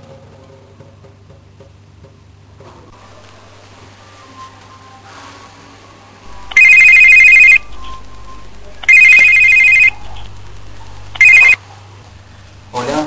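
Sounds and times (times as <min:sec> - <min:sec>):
telephone ringing electronic trill: 0:06.3 - 0:11.6.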